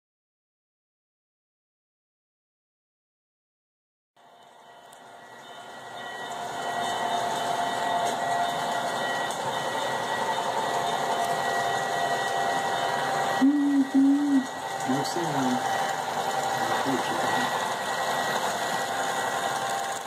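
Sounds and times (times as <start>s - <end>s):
model train humming and rumbling: 4.2s - 20.0s.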